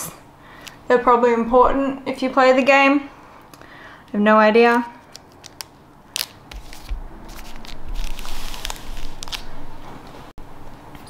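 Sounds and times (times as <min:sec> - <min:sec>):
foil wrappers crinkling: 0:05.0 - 0:09.7.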